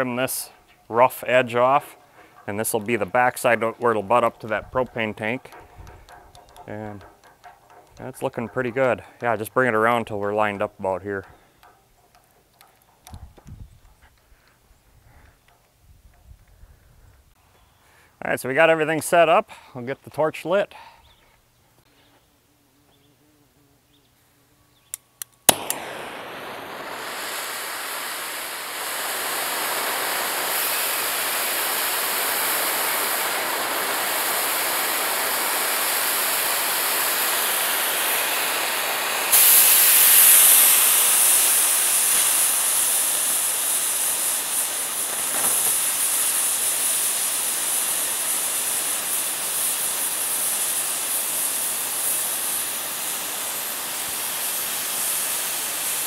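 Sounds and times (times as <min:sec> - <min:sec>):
cutting torch hissing: 0:00.0 - 0:10.4, 0:25.5 - 0:56.0
torch igniter clicks: 0:00.8 - 0:09.4, 0:11.2 - 0:14.2, 0:24.9 - 0:54.2
torch lighting pop: 0:25.2 - 0:38.2, 0:38.9 - 0:50.7.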